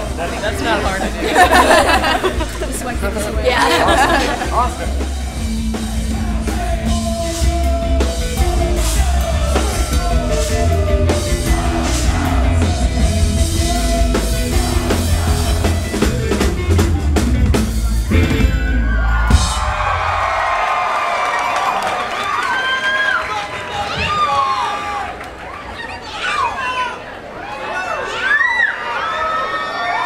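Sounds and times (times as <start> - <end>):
rock music with drums and bass: 0.0 - 20.0
crowd noise: 0.0 - 30.0.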